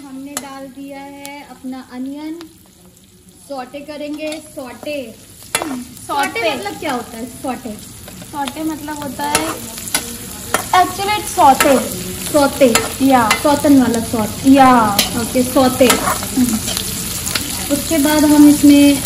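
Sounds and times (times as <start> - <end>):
light sizzle: 0.0 - 19.0
skimmer scraping metal wok: 8.0 - 19.0.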